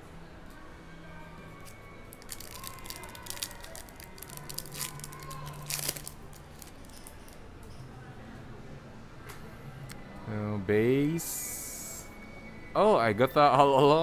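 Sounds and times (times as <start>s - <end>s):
foil wrapper tearing and crinkling: 2.1s - 7.1s
cards rustling: 2.2s - 7.3s.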